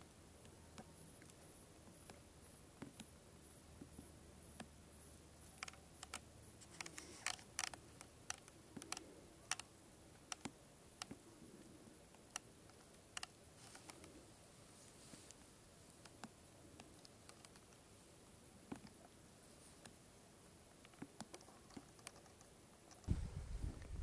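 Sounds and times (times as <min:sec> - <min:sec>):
sharp irregular clicks: 0:03.8 - 0:11.2, 0:12.0 - 0:14.2, 0:15.3 - 0:17.8, 0:20.8 - 0:23.2.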